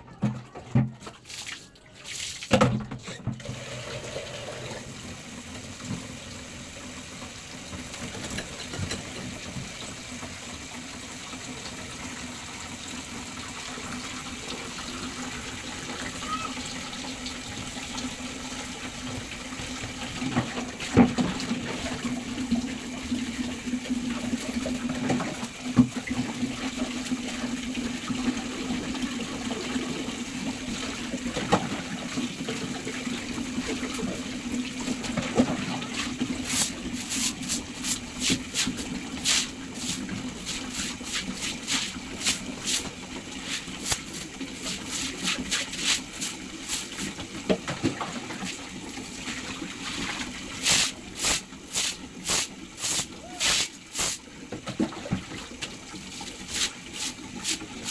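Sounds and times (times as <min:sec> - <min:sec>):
sharp knocks and splashes: 0:00.2 - 0:03.4
water running from a tap: 0:00.8 - 0:57.9.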